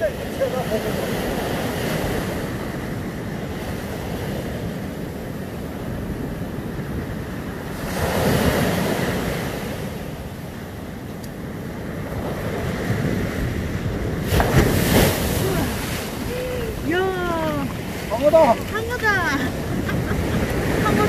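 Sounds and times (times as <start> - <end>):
ocean surf on sandy beach: 0.0 - 21.0
wind buffeting microphone: 11.4 - 21.0.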